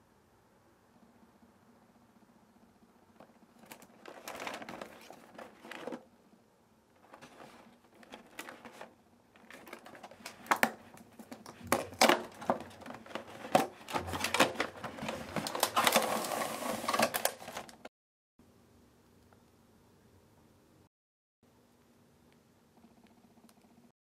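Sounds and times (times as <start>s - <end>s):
plastic tray scraping rustle: 7.0s - 10.4s, 11.4s - 17.9s.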